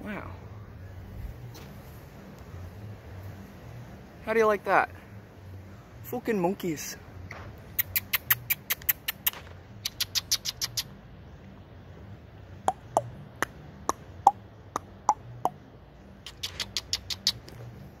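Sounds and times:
animal chirping: 0:07.8 - 0:11.0, 0:16.2 - 0:17.7.

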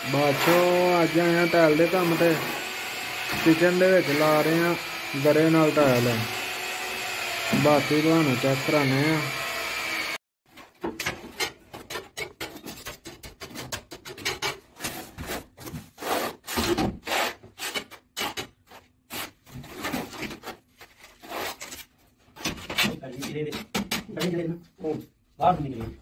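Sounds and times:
trowels scraping mortar on tiles: 0:11.3 - 0:24.4.

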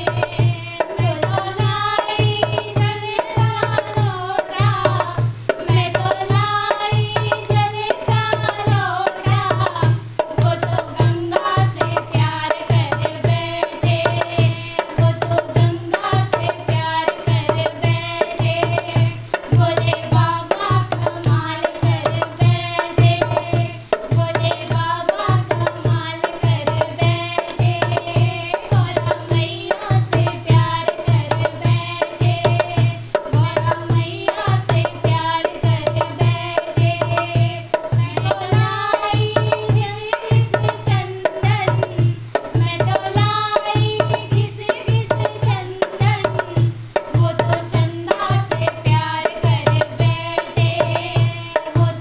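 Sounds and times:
hand drum beat: 0:00.0 - 0:52.0
women singing devotional song: 0:00.0 - 0:52.0.

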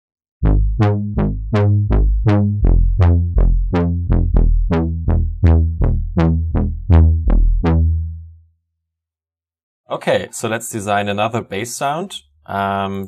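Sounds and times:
synth bass line: 0:00.4 - 0:08.5.

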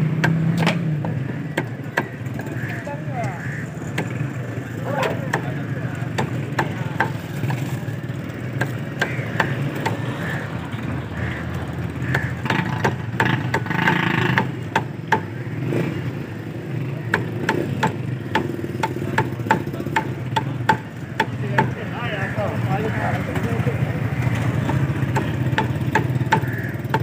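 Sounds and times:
cleaver chopping on wooden block: 0:05.0 - 0:07.7, 0:08.6 - 0:10.0, 0:12.1 - 0:15.3, 0:17.1 - 0:21.8, 0:24.6 - 0:27.0.

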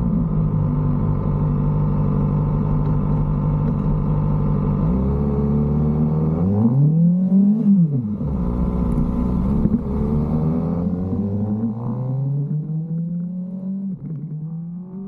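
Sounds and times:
motorcycle engine revving: 0:04.8 - 0:15.0.

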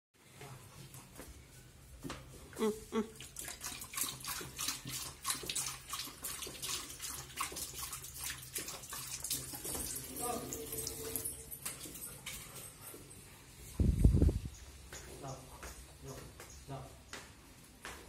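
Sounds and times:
dog lapping water: 0:02.9 - 0:13.0
tap water pouring into sink: 0:03.3 - 0:11.8.

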